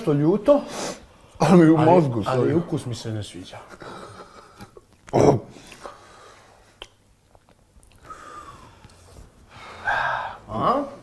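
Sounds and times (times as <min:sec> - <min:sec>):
quiet chewing of a snack: 0:06.6 - 0:08.2
faint mouth clicks: 0:06.8 - 0:08.1
loud breath out: 0:08.0 - 0:08.9, 0:09.5 - 0:10.5.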